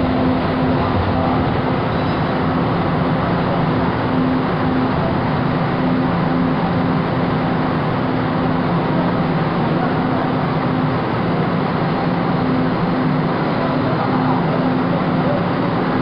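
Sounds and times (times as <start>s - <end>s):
low hum: 0.0s - 10.9s
light-rail train rumble and hiss: 0.0s - 16.0s.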